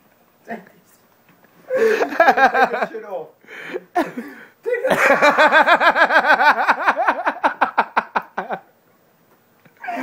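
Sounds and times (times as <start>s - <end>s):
person laughing hard: 4.0s - 8.6s.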